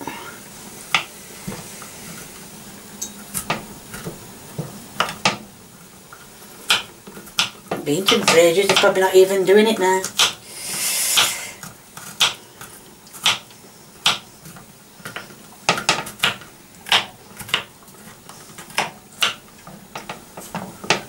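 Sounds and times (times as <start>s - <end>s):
knife chopping on wooden board: 13.2s - 14.2s, 15.1s - 17.7s, 18.7s - 19.4s.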